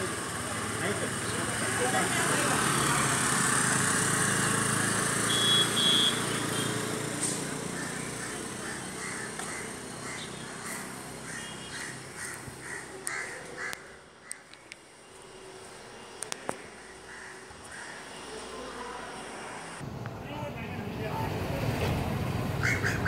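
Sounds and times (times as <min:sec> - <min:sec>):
vehicle passing: 0:00.0 - 0:12.9, 0:17.7 - 0:23.0
crow cawing: 0:07.6 - 0:14.6, 0:16.6 - 0:18.7, 0:22.6 - 0:23.0.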